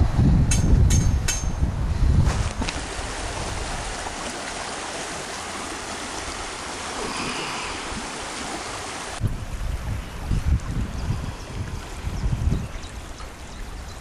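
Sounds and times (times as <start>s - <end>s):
shallow river rushing over stones: 2.4s - 9.2s.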